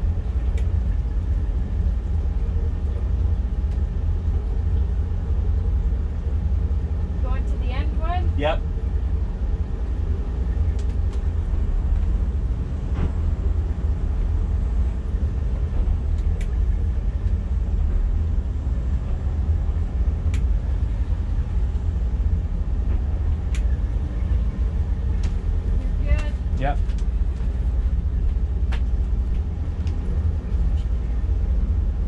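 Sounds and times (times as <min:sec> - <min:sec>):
boat engines idling: 0:00.0 - 0:32.0
faint clicks: 0:20.3 - 0:20.5.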